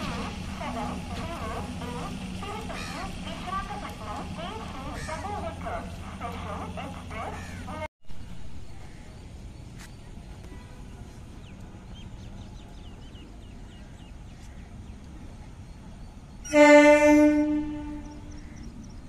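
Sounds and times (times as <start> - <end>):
train horn blast: 0.0 - 7.5, 16.4 - 18.6.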